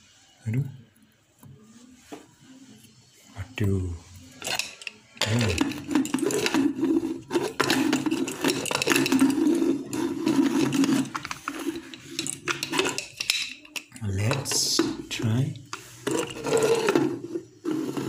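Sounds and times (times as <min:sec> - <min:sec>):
pot lid clinking and clattering: 0:04.4 - 0:15.0, 0:15.8 - 0:18.0.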